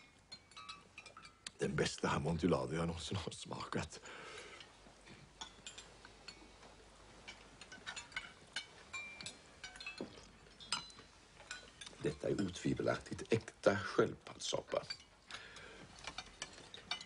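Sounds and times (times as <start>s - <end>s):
spoons clinking on bowls: 0.0s - 1.6s, 4.5s - 13.6s, 14.4s - 17.0s.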